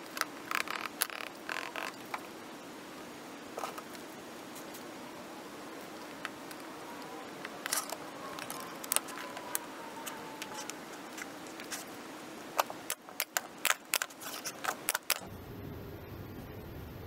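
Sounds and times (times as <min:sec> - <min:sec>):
plexiglass and wood pieces clicking: 0:07.4 - 0:11.8, 0:12.6 - 0:15.2.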